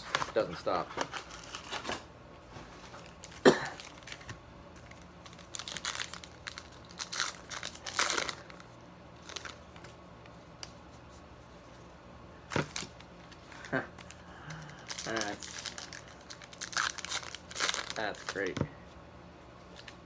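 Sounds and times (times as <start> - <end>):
card pack wrapper tearing and crinkling: 3.1 - 8.6, 9.2 - 9.9, 12.5 - 18.6.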